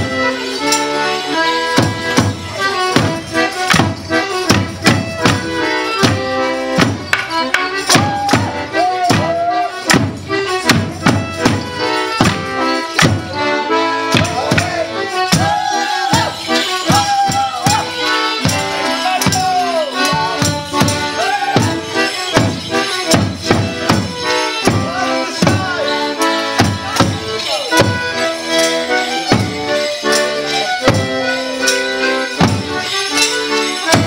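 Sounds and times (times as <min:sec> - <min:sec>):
fiddle: 0:00.0 - 0:34.0
folk dance band playing: 0:00.0 - 0:34.0.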